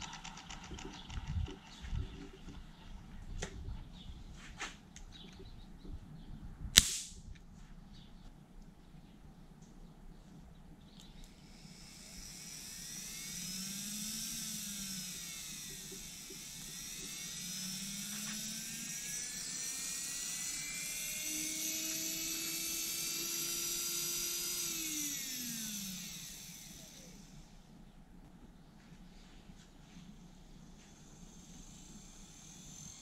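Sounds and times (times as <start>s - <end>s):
small gearbox motor whining: 0.0s - 4.1s, 11.0s - 27.6s, 30.1s - 33.0s.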